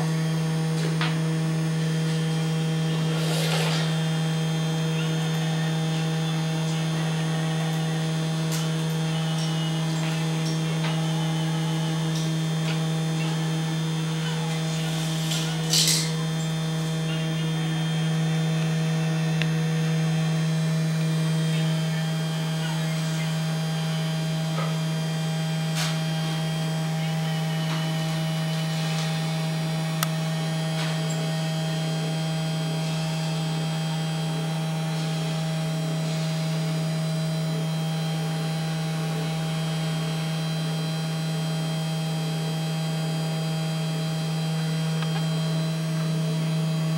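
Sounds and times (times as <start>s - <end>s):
spindle motor humming: 0.0s - 46.9s
brief scrape: 3.2s - 4.0s.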